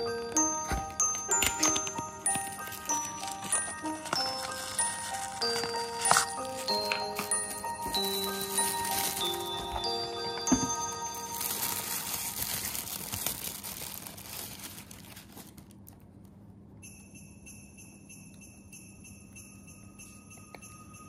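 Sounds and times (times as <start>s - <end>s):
music with bell-like tones: 0.0s - 13.2s, 16.8s - 21.0s
tissue paper rustling: 0.0s - 16.0s.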